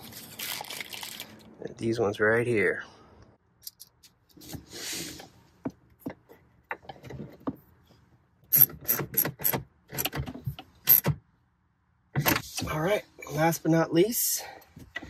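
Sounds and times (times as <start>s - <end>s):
plastic bag crinkle: 0.0s - 1.5s.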